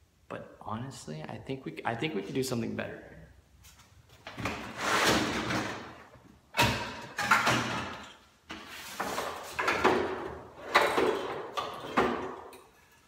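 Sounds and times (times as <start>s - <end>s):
objects rummaged and scraped: 4.4s - 5.9s, 7.2s - 12.2s.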